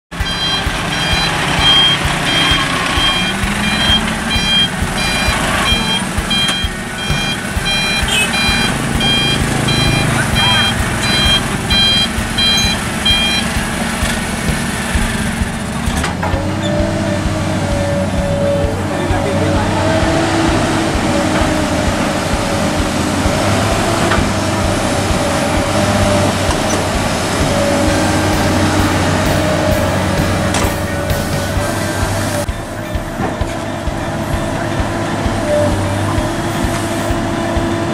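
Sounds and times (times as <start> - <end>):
truck engine running: 0.0 - 37.9
reverse alarm beeps: 0.2 - 14.0.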